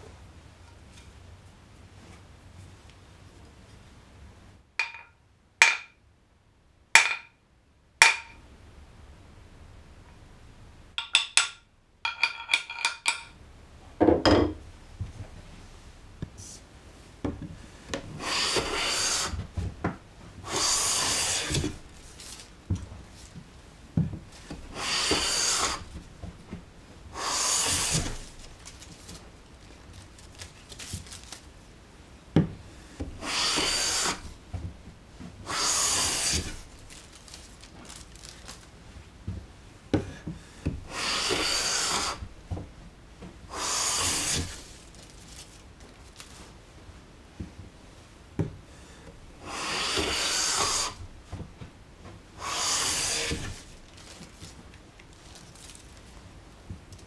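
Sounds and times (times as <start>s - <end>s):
hammer tapping plane blade: 8.0s - 8.4s
hand plane cutting wood shavings: 18.2s - 19.4s, 20.5s - 21.8s, 24.7s - 25.8s, 27.2s - 28.2s, 33.2s - 34.2s, 35.5s - 36.6s, 40.9s - 42.2s, 43.6s - 44.6s, 49.5s - 51.0s, 52.4s - 53.6s.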